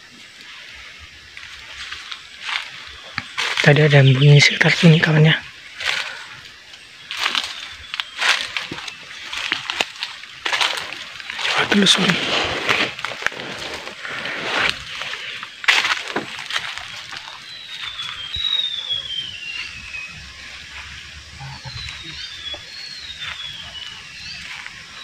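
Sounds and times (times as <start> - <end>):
dry leaves crackling underfoot: 0.0 - 25.0
bird whistling: 17.3 - 25.0.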